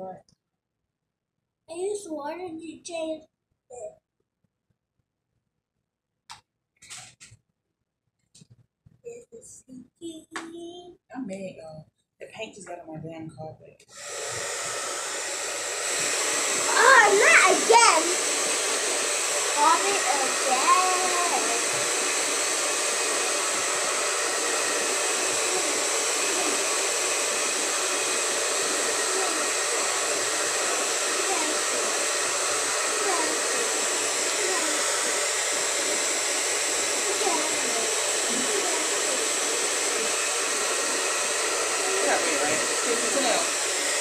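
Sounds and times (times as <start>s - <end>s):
hair dryer running: 13.9s - 44.0s.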